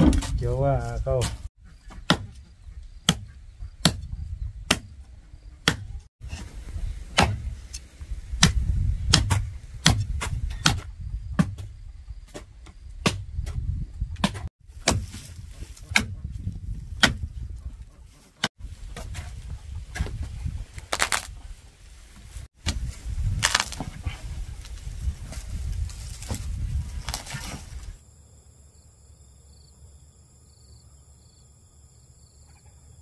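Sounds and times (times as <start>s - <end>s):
machete chopping tree root: 2.1s - 2.4s, 3.1s - 4.0s, 4.7s - 4.9s, 5.6s - 5.9s, 7.2s - 7.5s, 8.4s - 11.7s, 12.3s - 13.6s, 14.2s - 16.2s, 17.0s - 17.3s, 20.9s - 21.3s, 22.6s - 24.0s.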